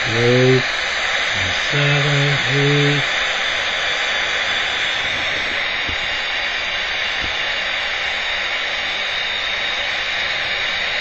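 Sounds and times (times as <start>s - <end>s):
detector alarm static hiss: 0.0s - 8.2s.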